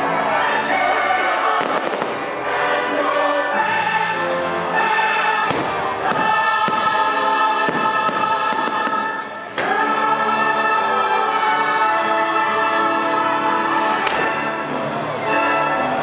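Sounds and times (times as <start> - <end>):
choir singing over loudspeakers: 0.0 - 16.0
firework bangs and crackles: 1.5 - 2.5, 5.4 - 9.7.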